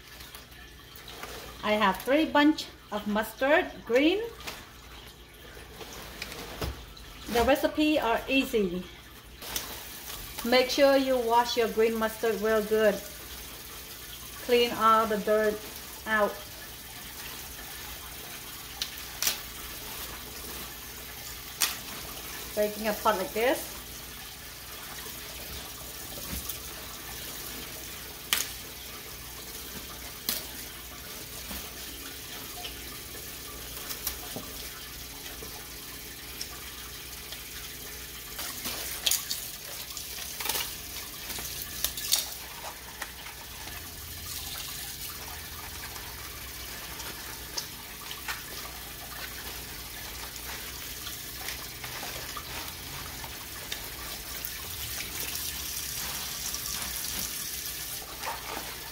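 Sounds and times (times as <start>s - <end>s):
faucet running into sink: 0.0s - 58.9s
water splashes and knocks: 4.0s - 7.6s, 25.1s - 28.8s, 33.8s - 35.6s.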